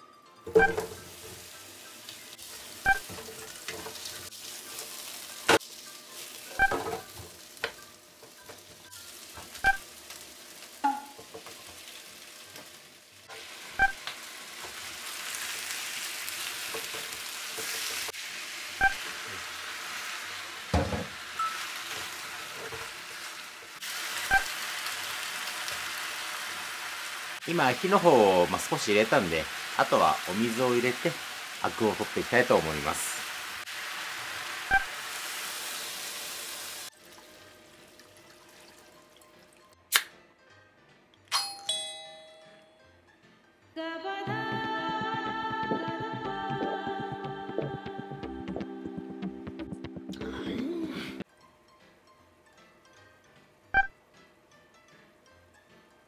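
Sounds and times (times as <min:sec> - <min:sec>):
food sizzling in a frying pan: 0:00.8 - 0:39.0.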